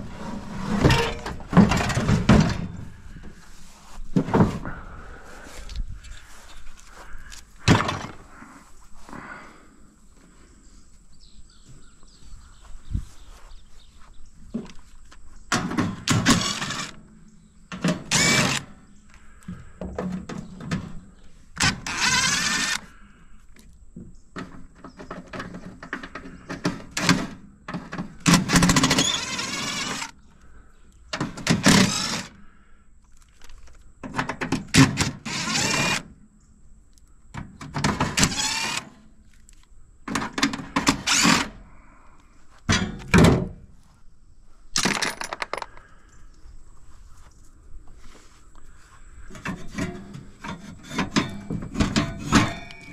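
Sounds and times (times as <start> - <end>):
power tool on fasteners: 15.6 - 17.0, 17.8 - 18.8, 21.6 - 23.0, 28.2 - 30.2, 31.2 - 32.4, 34.7 - 36.1, 37.8 - 39.0, 40.2 - 41.6.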